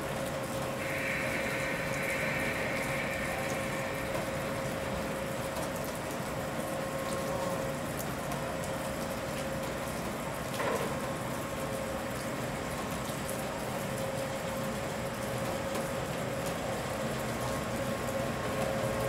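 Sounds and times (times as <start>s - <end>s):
train electrical hum: 0.0s - 19.0s
hiss: 0.8s - 5.1s.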